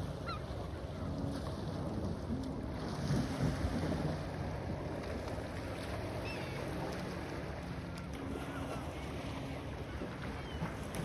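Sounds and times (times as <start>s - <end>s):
wind rumbling on microphone: 0.0s - 11.0s
faint gull calls: 0.1s - 0.8s, 6.2s - 6.7s.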